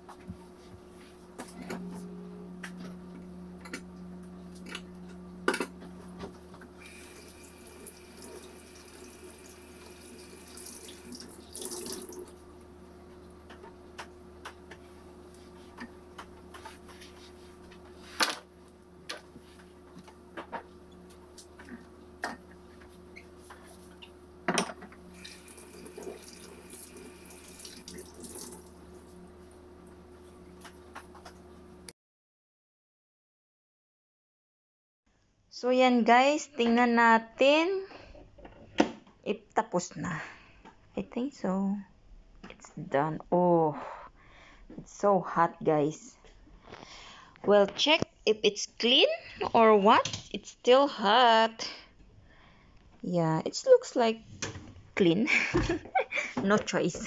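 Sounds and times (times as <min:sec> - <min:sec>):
dishwasher motor hum: 0:00.0 - 0:31.9.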